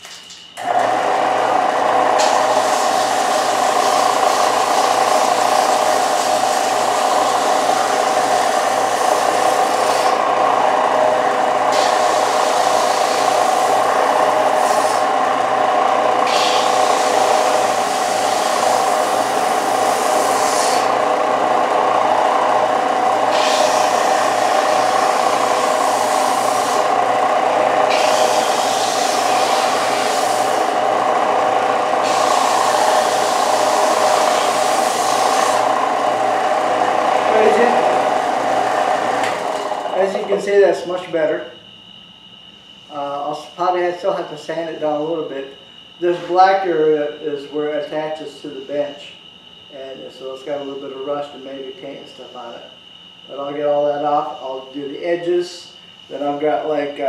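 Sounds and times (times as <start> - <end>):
belt sander motor hum: 0.6 - 40.8
wood rasping on sanding belt: 2.2 - 10.3, 11.7 - 15.2, 16.2 - 21.1, 23.2 - 27.0, 27.8 - 30.9, 31.9 - 36.3.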